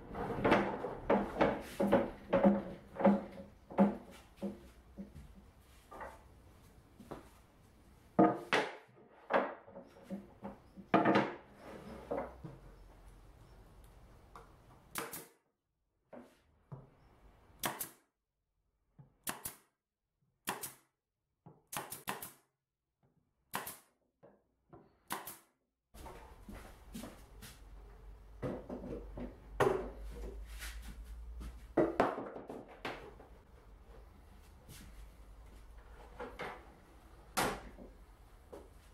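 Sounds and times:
wooden knocks: 0:00.3 - 0:05.4
pneumatic nailer firing: 0:17.6 - 0:18.0.

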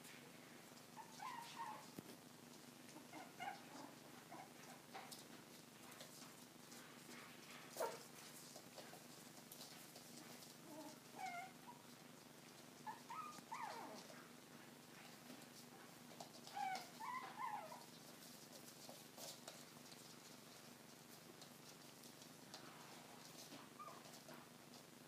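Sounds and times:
puppies squeaking and yipping: 0:01.0 - 0:01.9, 0:03.0 - 0:04.8, 0:10.6 - 0:11.9, 0:12.8 - 0:14.1, 0:16.4 - 0:17.9, 0:23.7 - 0:24.2.

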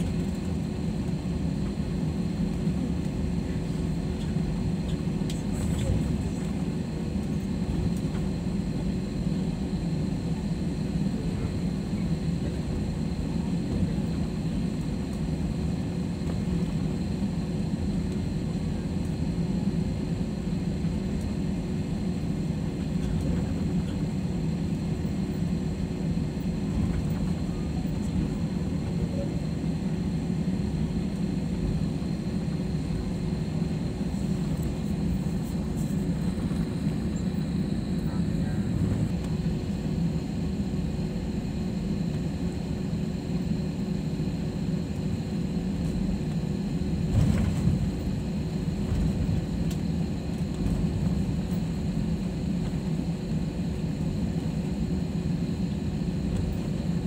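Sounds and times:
faint constant hum: 0:00.0 - 0:57.0.

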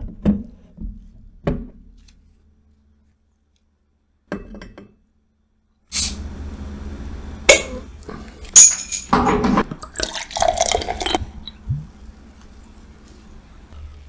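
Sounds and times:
beer pouring into glass: 0:09.7 - 0:11.6.

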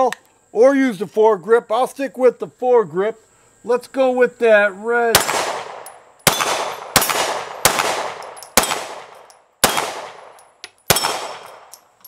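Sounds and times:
pistol shots echoing: 0:05.1 - 0:11.8.

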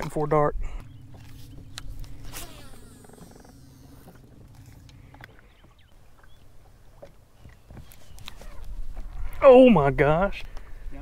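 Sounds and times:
steady low hum: 0:00.0 - 0:07.7
fishing reel cranking: 0:01.8 - 0:05.3.

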